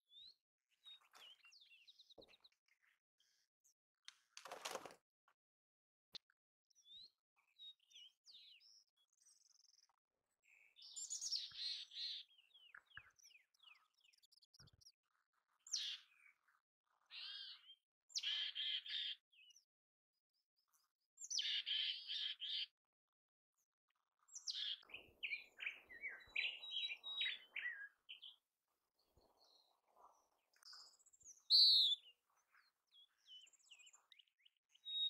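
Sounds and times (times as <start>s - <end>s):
chickadee calling: 24.6s - 28.3s, 31.5s - 32.1s.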